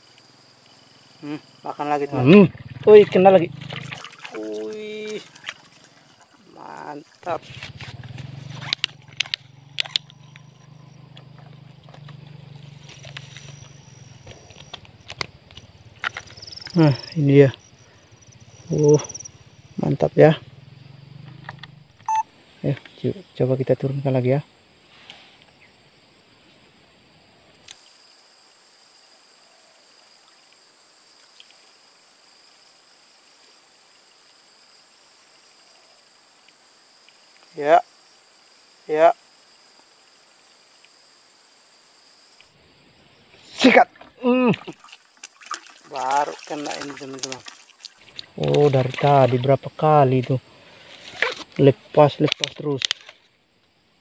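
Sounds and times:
insects chirring: 0:00.0 - 0:54.0
low buzzing hum: 0:07.2 - 0:16.7.

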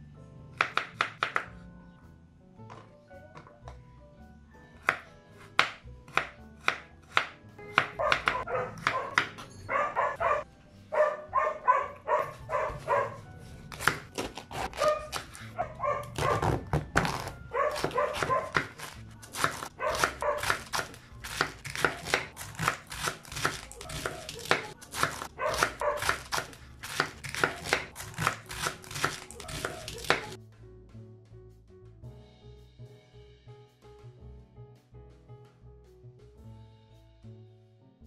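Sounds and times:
faint background music: 0:00.0 - 0:38.0
knife chopping on wooden board: 0:00.6 - 0:01.5, 0:04.8 - 0:09.5, 0:13.6 - 0:30.4
dog yipping: 0:07.7 - 0:13.2, 0:14.6 - 0:16.5, 0:17.5 - 0:18.7, 0:19.8 - 0:20.6, 0:25.4 - 0:26.3.

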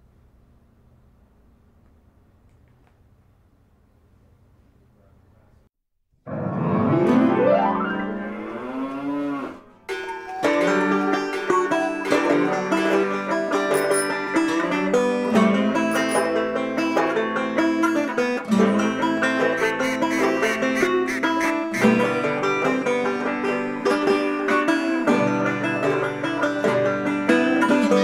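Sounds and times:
plucked string music: 0:06.3 - 0:08.4, 0:09.7 - 0:28.0.

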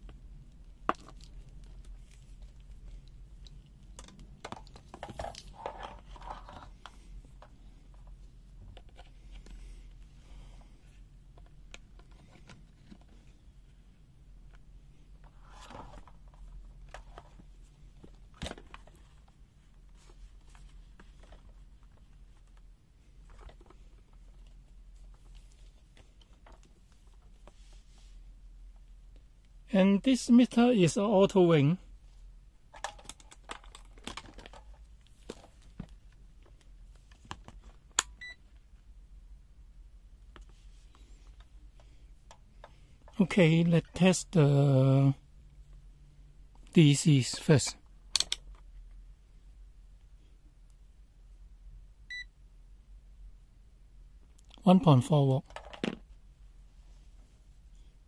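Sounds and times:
rustling of handling: 0:00.0 - 0:29.3, 0:32.0 - 0:37.9.

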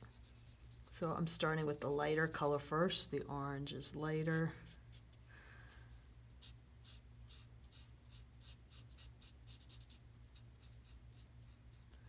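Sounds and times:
marker scratching on paper: 0:06.4 - 0:11.9.

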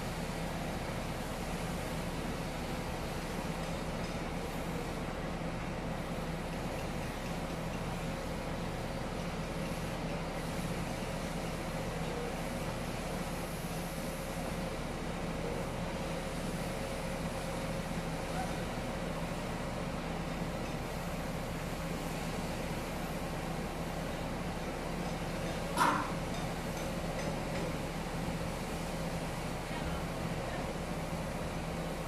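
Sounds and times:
constant low hum: 0:00.0 - 0:32.0
heavy machinery drone: 0:25.4 - 0:26.4.

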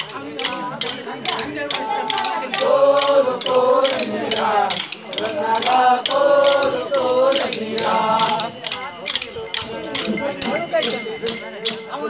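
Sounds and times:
group singing a chant: 0:00.0 - 0:11.8
wooden sticks clacking: 0:00.0 - 0:12.0.

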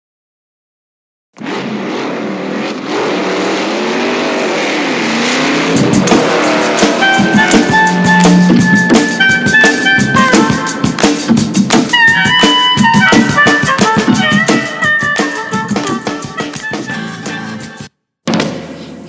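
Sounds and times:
car engine revving: 0:01.4 - 0:16.2
music with horns and drums: 0:05.4 - 0:18.9.

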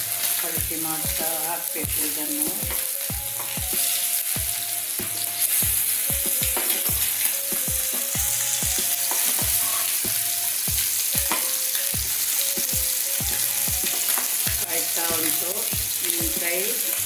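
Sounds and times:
background music with even beat: 0:00.0 - 0:17.0
fish sizzling in oil: 0:00.0 - 0:17.0
metal spatula scraping: 0:01.2 - 0:15.7.

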